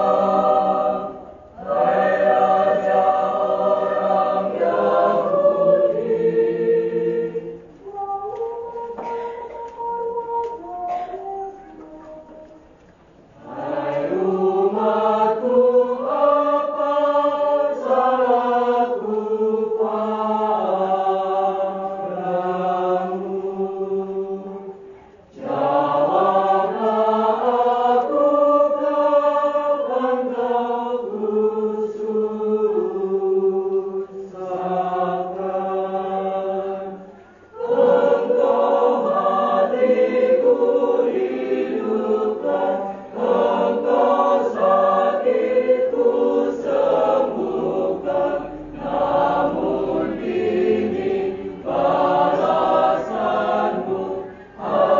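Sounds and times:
mixed choir singing: 0.0 - 54.9.

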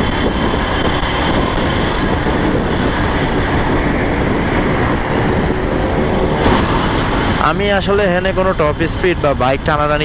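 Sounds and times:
wind buffeting microphone: 0.0 - 10.0
wind rush and road rumble: 0.0 - 10.0.

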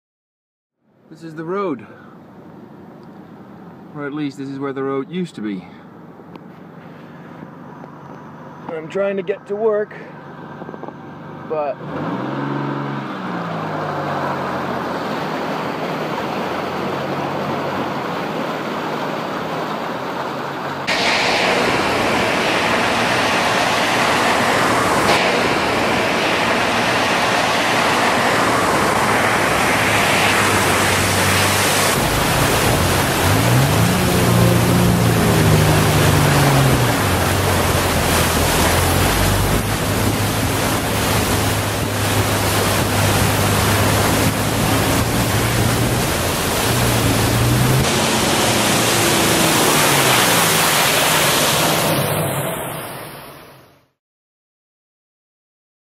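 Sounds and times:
truck spraying through floodwater: 6.6 - 53.7
truck engine revving: 11.4 - 53.2.

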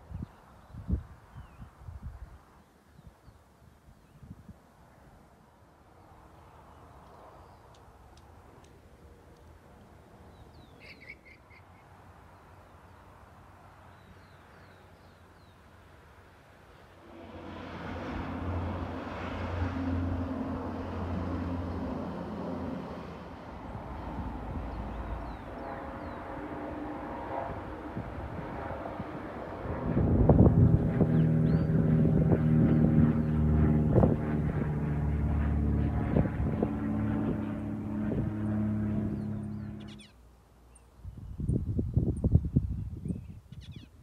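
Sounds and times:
vehicle engine running: 35.0 - 40.1.

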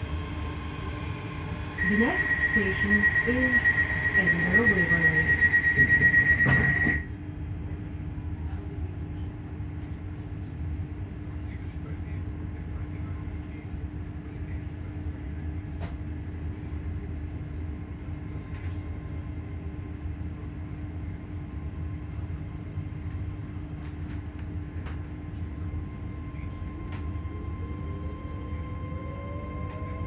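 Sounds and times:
train motor hum: 0.0 - 7.1, 23.0 - 30.0
faint high whine: 1.5 - 7.1.

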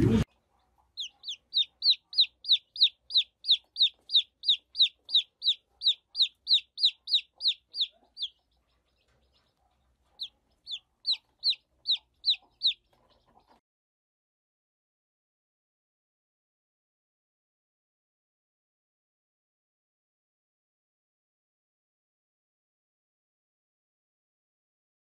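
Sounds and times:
chick peeping: 0.0 - 13.6.

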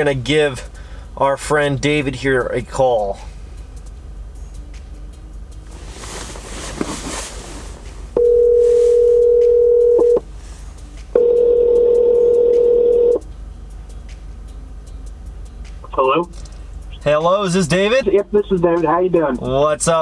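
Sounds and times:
telephone ringback tone: 8.2 - 10.2, 11.2 - 13.2.

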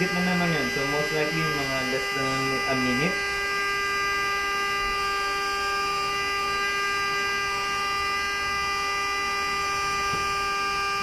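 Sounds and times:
machine whine: 0.0 - 11.0.

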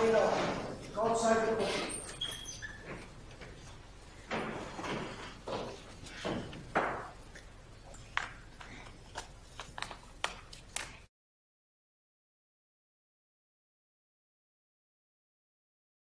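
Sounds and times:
people shuffling and rustling: 0.0 - 2.2, 2.8 - 11.1
sharp clicks and knocks: 4.3 - 11.0.

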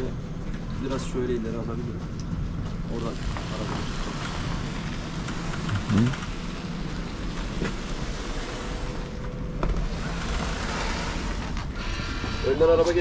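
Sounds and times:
engine and tyre rumble: 0.0 - 11.8.

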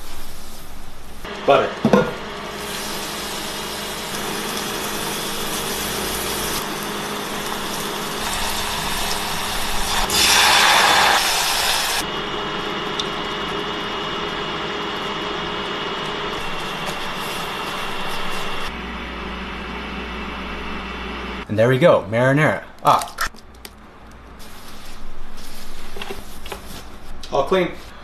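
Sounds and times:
steady hum: 0.0 - 21.5
loud hissing sizzle: 2.2 - 13.1, 16.3 - 18.7
butter sizzling in a saucepan: 2.6 - 12.0.

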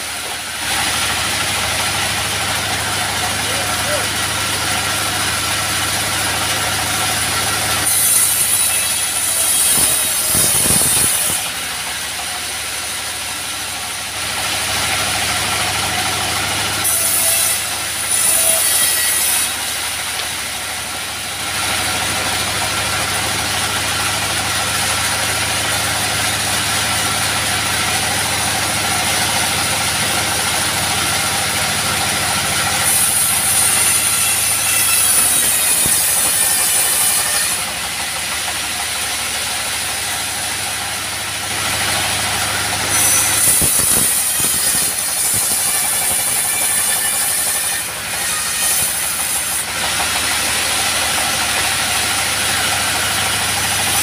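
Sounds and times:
diesel engine humming: 0.0 - 7.8, 19.6 - 34.2, 37.6 - 42.9, 49.6 - 54.0
saw blade cutting timber: 0.0 - 54.0.

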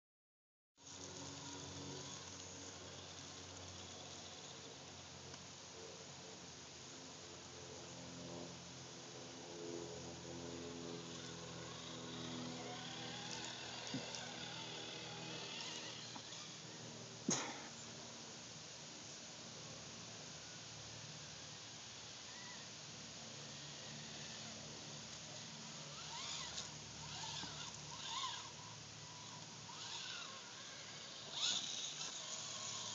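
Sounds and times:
toy truck motor whining: 0.9 - 4.6, 10.9 - 16.8, 23.4 - 24.6, 25.4 - 32.9.

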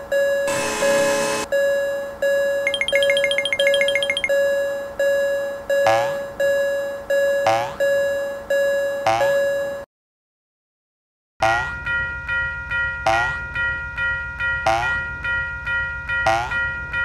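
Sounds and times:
railroad crossing bell ringing: 0.0 - 9.8, 11.4 - 17.0
high pips: 2.7 - 4.3.

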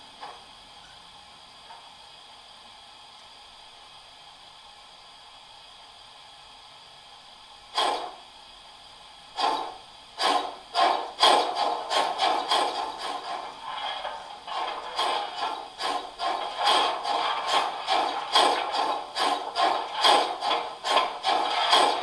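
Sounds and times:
faint steady hiss: 0.0 - 21.8
model steam locomotive chuffs: 6.0 - 22.0.

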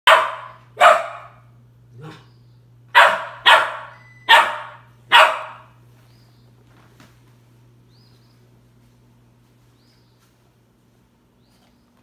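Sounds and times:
puppy barking: 0.1 - 2.2, 2.9 - 5.8.

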